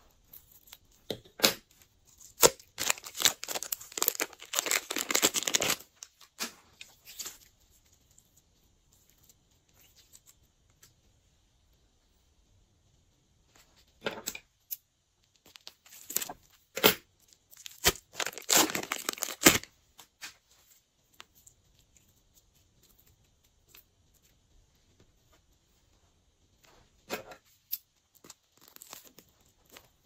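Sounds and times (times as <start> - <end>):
plastic bags crinkling: 2.2 - 7.4, 15.5 - 16.4, 17.5 - 19.7.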